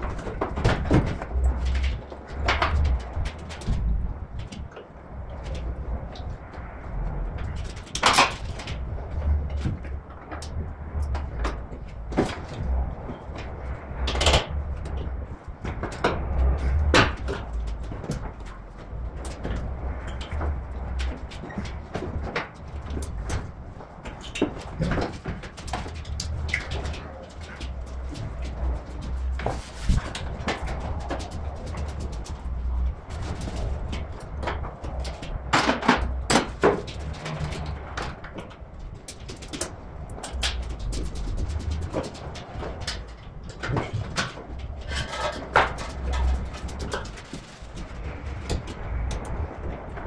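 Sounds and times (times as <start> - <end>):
metal parts and tools clanking: 33.2 - 49.4.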